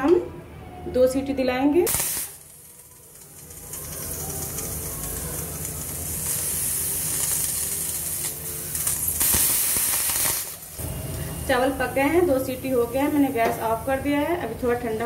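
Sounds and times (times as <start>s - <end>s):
pressure cooker hissing steam: 1.9s - 10.9s.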